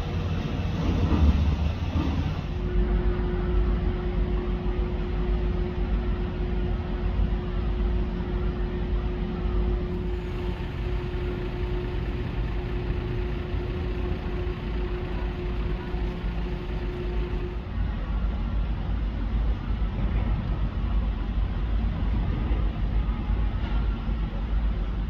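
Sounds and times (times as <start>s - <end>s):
mid-pitched hum: 0.0s - 18.4s
ferry machinery rumbling: 9.8s - 18.0s.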